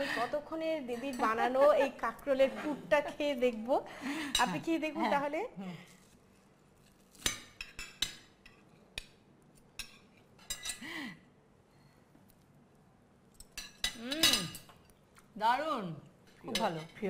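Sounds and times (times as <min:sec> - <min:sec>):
cutlery clinking on plates: 0:09.8 - 0:10.8, 0:13.4 - 0:14.9.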